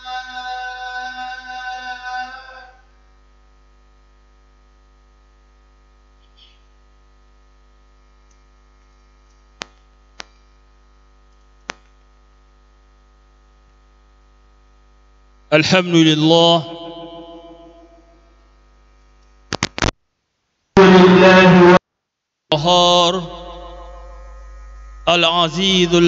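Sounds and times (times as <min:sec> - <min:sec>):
electrical mains hum: 0:00.0 - 0:26.0
sharp clicks: 0:19.2 - 0:19.9.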